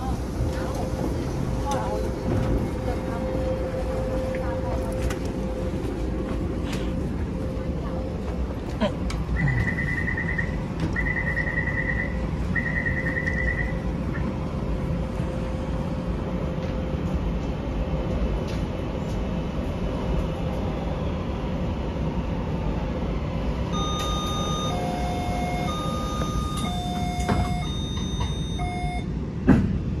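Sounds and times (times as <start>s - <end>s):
train rumble: 0.0s - 30.0s
trilling door warning beeps: 9.4s - 14.2s, 23.7s - 29.1s
held electronic tones: 23.7s - 29.1s.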